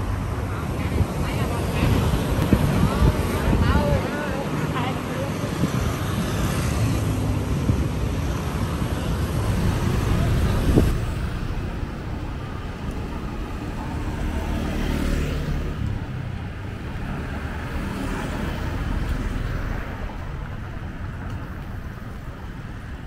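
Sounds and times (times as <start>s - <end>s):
scooters and cars rumbling: 0.0s - 23.0s
vehicles passing: 0.0s - 23.0s.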